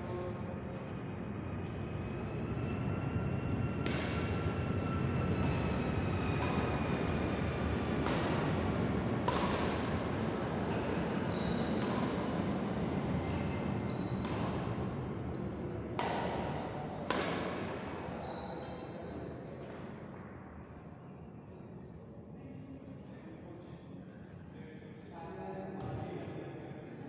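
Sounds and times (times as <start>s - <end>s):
steady background noise: 0.0s - 27.0s
rackets hitting shuttlecock: 3.7s - 4.3s, 5.4s - 6.9s, 7.6s - 18.2s
shoes squeaking on wooden court: 10.6s - 12.0s, 13.3s - 14.6s, 15.3s - 16.0s, 18.2s - 19.1s.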